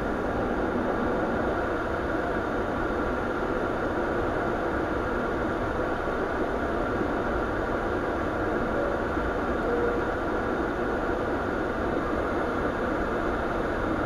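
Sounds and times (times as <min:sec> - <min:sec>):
cockpit machinery hum: 0:00.0 - 0:14.0.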